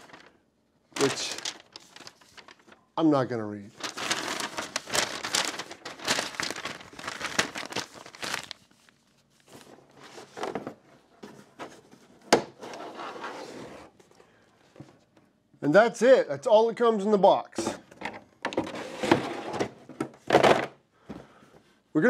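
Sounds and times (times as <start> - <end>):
cable rustling in cardboard box: 0.0 - 0.4, 1.0 - 2.8, 3.8 - 14.0
paper crinkling: 0.0 - 0.4, 1.0 - 2.8, 3.7 - 10.6.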